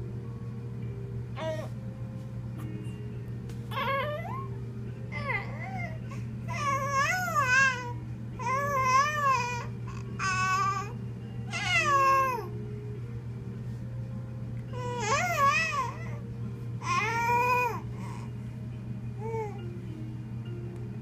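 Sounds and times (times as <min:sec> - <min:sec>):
baby fussing and cooing: 0:03.7 - 0:12.5, 0:14.8 - 0:16.2, 0:16.8 - 0:18.4.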